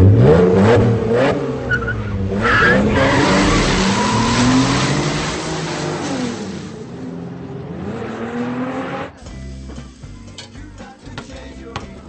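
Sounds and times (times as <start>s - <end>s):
car engine revving: 0.0s - 9.3s
tyres screeching: 1.7s - 5.2s.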